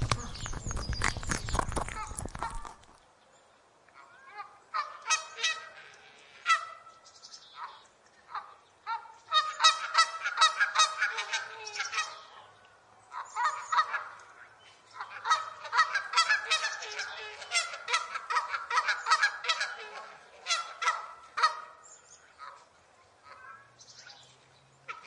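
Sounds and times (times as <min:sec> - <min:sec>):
geese honking: 0:04.3 - 0:06.9, 0:07.6 - 0:12.4, 0:15.0 - 0:21.8.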